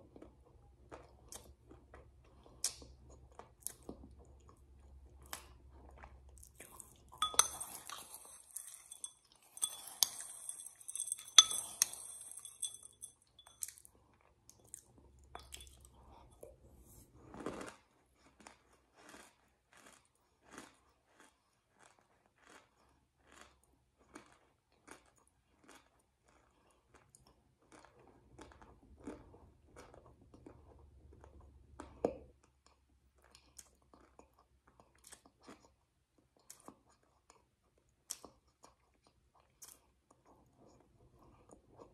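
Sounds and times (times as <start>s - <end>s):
spoon clinking on wine glass: 7.2s - 13.7s, 15.4s - 15.8s
crunchy chewing: 17.2s - 31.2s.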